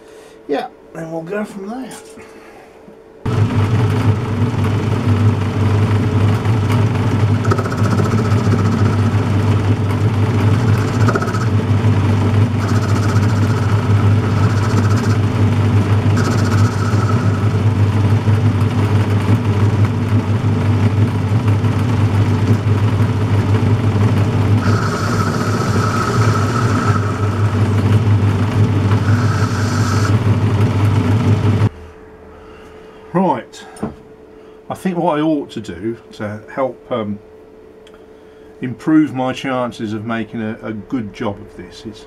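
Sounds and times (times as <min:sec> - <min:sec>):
high whine and hiss: 0:00.0 - 0:03.5, 0:07.1 - 0:20.7, 0:22.0 - 0:42.0
metal lathe motor hum: 0:03.3 - 0:31.7.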